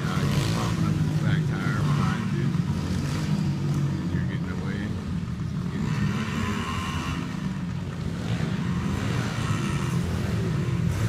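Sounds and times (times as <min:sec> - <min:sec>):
dirt bike engines droning: 0:00.0 - 0:11.0.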